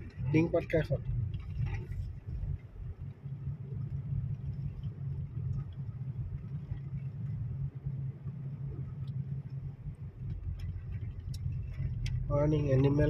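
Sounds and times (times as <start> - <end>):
car interior engine and tyre rumble: 0.0 - 13.0.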